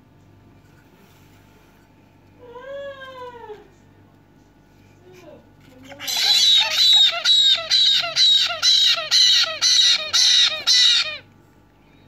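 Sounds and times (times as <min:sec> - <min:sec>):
parrot chick begging squawks: 0:05.8 - 0:11.3.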